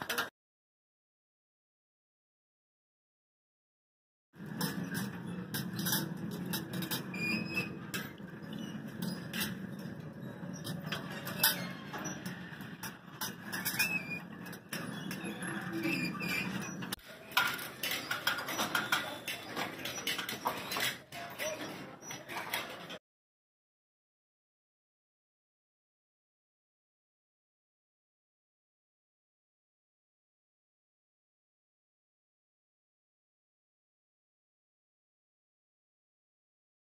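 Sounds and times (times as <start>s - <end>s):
mechanical puppets clicking and clattering: 4.4s - 23.0s.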